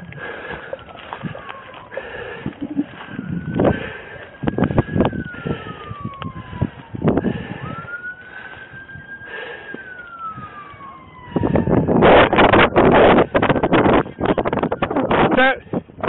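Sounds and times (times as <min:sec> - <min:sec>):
siren wailing: 0:00.0 - 0:16.0
rushing noise on microphone: 0:09.6 - 0:16.0.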